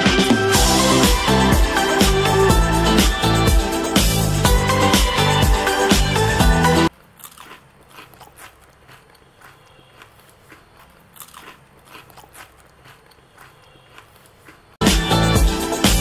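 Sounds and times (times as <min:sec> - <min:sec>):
crunchy food chewing: 0:06.9 - 0:14.8.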